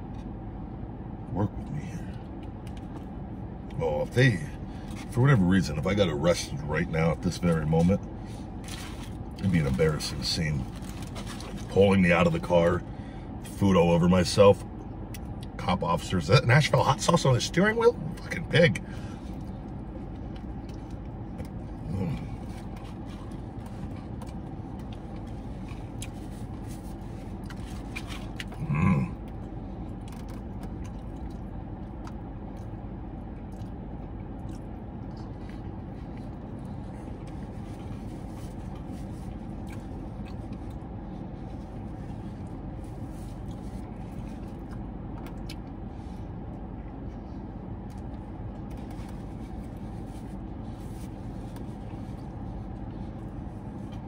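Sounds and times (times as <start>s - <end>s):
car cabin hum: 0.0s - 54.0s
man chewing food: 7.3s - 11.8s, 18.1s - 54.0s
man humming: 21.8s - 22.4s, 28.6s - 29.2s.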